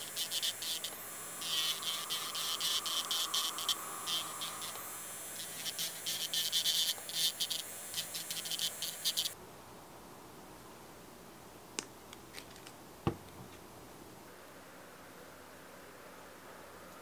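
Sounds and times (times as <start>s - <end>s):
drill bit scratchy grinding: 0.0s - 9.4s
electric nail drill whining: 0.0s - 9.4s.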